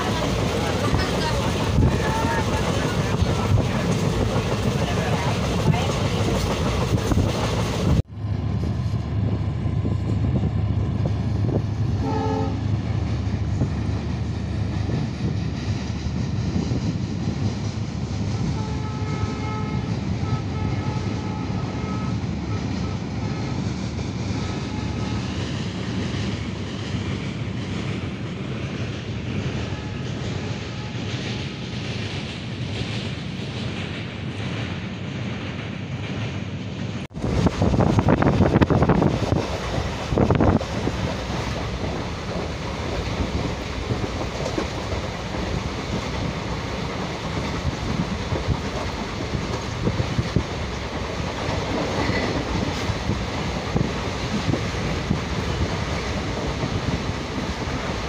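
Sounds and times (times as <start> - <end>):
train rumbling over bridge: 0.0 - 58.0
train running noise from aboard: 0.0 - 58.0
train horn: 12.0 - 12.7, 18.3 - 23.6, 24.4 - 25.4, 29.6 - 31.2.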